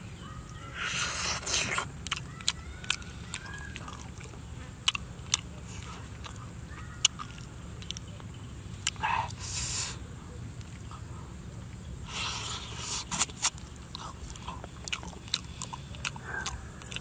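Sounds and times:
mouth clicks: 0:00.5 - 0:10.0, 0:12.1 - 0:17.0
man biting and chewing meat: 0:00.8 - 0:08.1, 0:08.8 - 0:09.9, 0:12.1 - 0:17.0.

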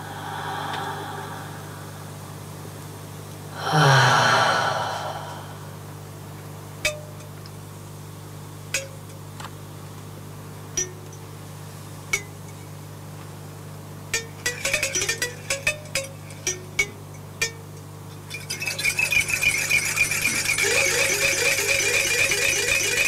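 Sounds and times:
loud breathy sigh: 0:00.0 - 0:02.3, 0:03.5 - 0:06.0
steady low hum: 0:00.0 - 0:23.0
metallic pings: 0:14.2 - 0:23.0.

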